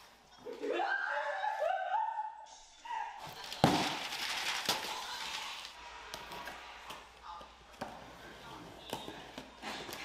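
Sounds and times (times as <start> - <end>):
paper and cardboard rustling: 3.2 - 6.6.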